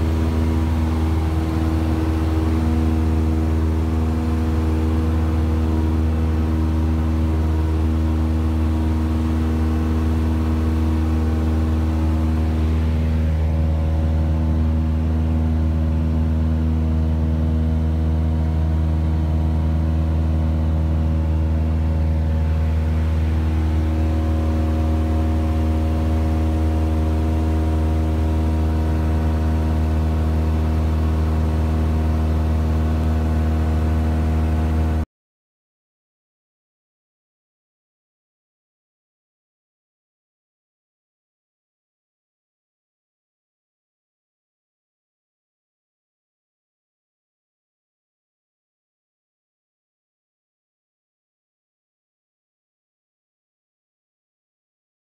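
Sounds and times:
propeller plane engine droning: 0.0s - 35.1s.

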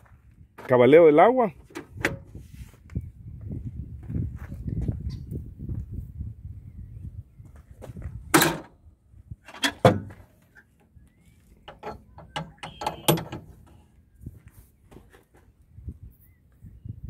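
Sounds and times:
metal clunks and knocks: 8.3s - 8.7s, 9.5s - 10.3s, 11.6s - 13.8s
metal rattles: 11.6s - 13.8s.

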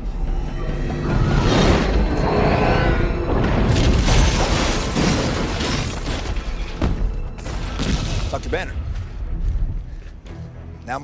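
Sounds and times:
orchestral film score: 0.0s - 11.0s
debris crashing: 3.3s - 8.7s.

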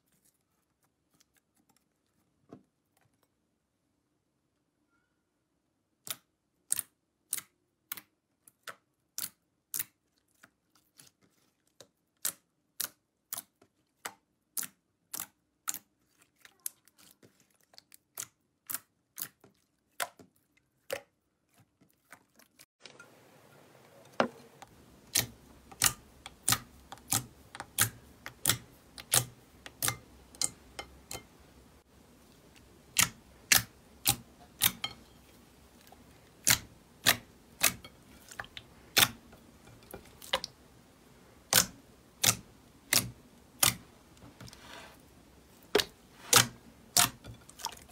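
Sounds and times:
faint steady hiss: 22.8s - 47.9s.

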